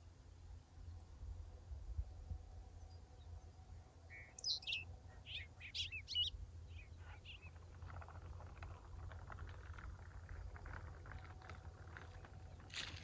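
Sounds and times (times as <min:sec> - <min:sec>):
low wind rumble: 0:00.0 - 0:13.0
songbird chirping: 0:02.7 - 0:13.0.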